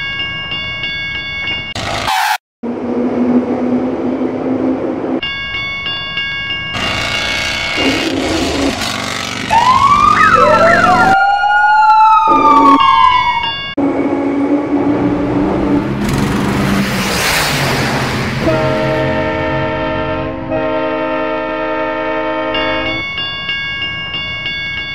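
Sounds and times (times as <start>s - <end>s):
emergency siren wailing: 6.8s - 15.9s
rushing noise: 13.8s - 20.0s
steady horn-like tones: 18.4s - 23.0s.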